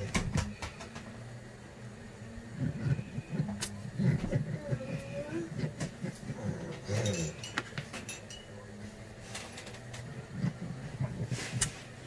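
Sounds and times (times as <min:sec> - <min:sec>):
glass clinking and tapping: 0:07.0 - 0:08.6.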